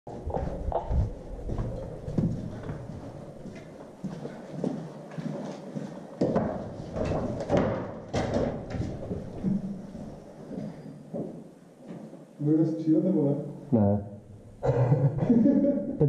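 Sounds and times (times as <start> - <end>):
footsteps on concrete and boards: 0.1 - 12.2.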